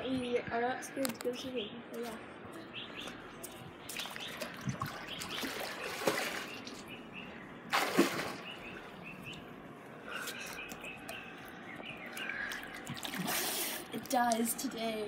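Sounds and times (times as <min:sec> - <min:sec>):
small birds chirping: 0:01.2 - 0:13.2
pool water lapping: 0:03.5 - 0:15.0.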